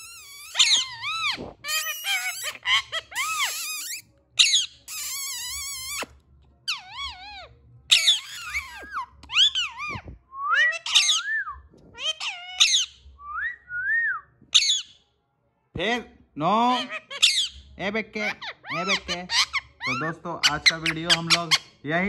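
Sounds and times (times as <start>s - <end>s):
parakeet whistled calls: 0.0s - 6.1s, 6.7s - 15.0s, 17.1s - 17.6s.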